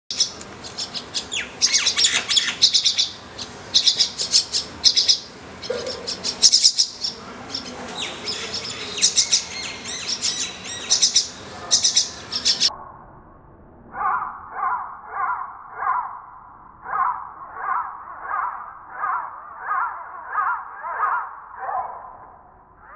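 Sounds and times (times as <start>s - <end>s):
nestlings begging calls: 0.1s - 12.7s.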